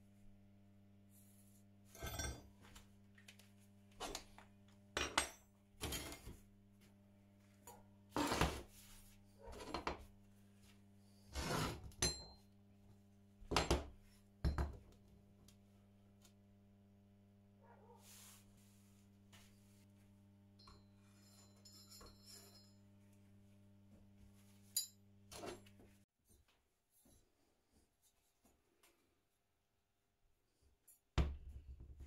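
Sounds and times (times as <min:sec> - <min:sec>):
metal clinking on metal: 0:20.6 - 0:22.9.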